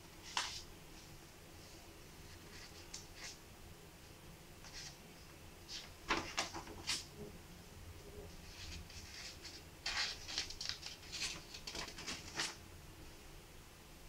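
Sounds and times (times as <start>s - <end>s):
notepad pages rustling: 0.2s - 0.7s, 5.7s - 7.1s, 8.4s - 12.6s.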